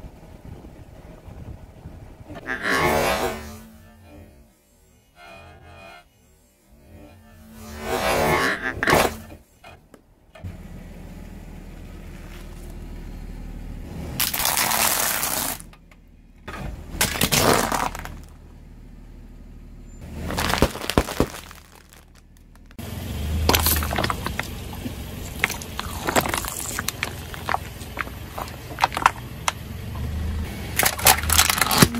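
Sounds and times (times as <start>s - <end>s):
car tyre crushing brittle objects: 11.9s - 12.9s, 14.2s - 15.9s, 16.9s - 18.5s, 20.1s - 31.9s
plastic bottles being squashed: 14.2s - 15.7s, 17.0s - 18.4s, 20.2s - 22.7s, 23.4s - 29.6s, 30.8s - 31.9s.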